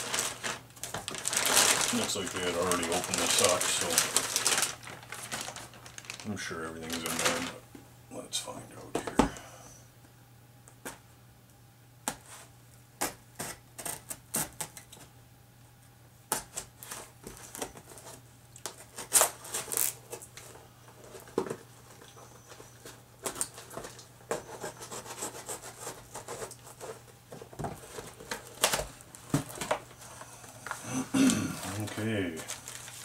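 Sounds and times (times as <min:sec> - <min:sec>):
cardboard being handled: 0:00.0 - 0:07.6, 0:31.7 - 0:33.0.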